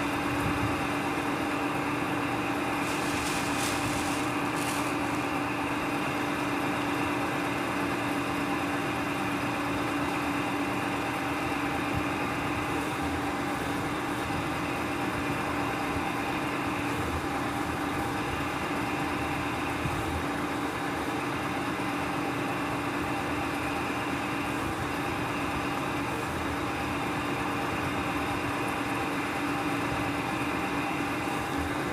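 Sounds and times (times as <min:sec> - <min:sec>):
electric motor humming: 0:02.7 - 0:05.8.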